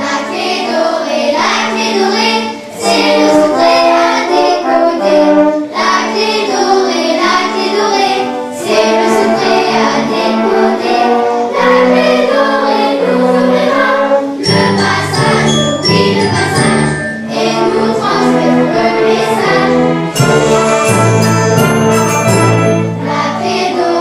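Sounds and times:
children's choir singing: 0:00.0 - 0:24.0
instrumental accompaniment: 0:00.0 - 0:24.0
high bell-like tinkles: 0:14.4 - 0:18.2, 0:20.2 - 0:23.7.

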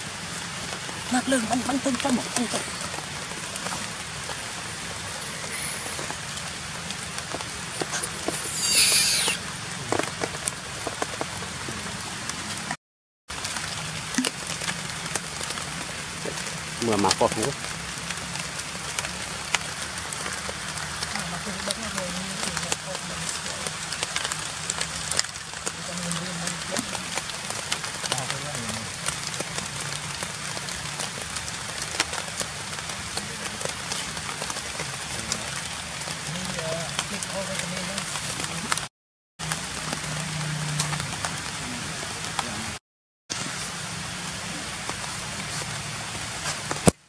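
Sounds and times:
rain on leaves: 0:00.0 - 0:47.0
water drips: 0:13.3 - 0:41.6.

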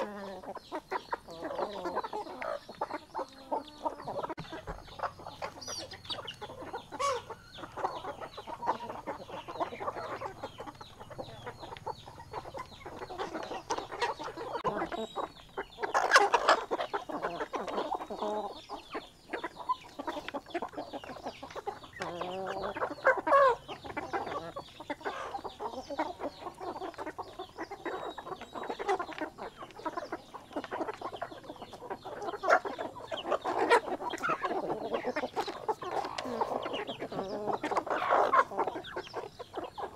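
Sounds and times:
hens and roosters clucking: 0:00.0 - 0:39.9
loud long chicken calls: 0:00.0 - 0:39.9.

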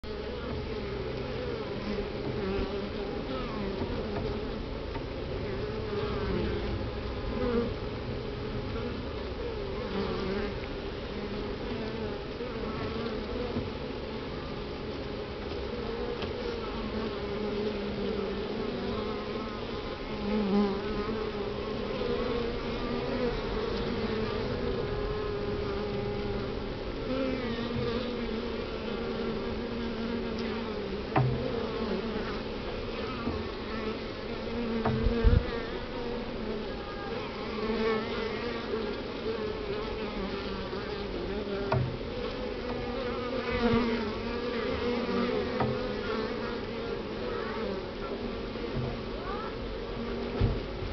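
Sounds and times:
bees buzzing: 0:00.1 - 0:50.9
knocks on hive: 0:31.1 - 0:31.5, 0:34.8 - 0:35.5, 0:50.4 - 0:50.7.

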